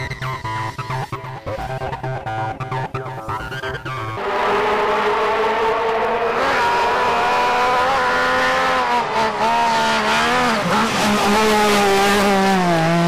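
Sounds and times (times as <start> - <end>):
rally car engine at high revs: 2.6 - 13.0.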